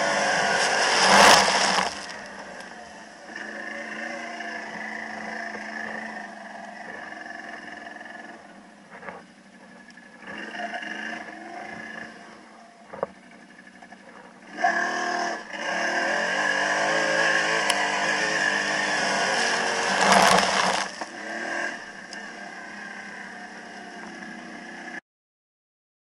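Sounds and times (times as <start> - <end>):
heavy splash of water and mud: 0.0 - 2.3
atv engine revving: 0.0 - 25.0.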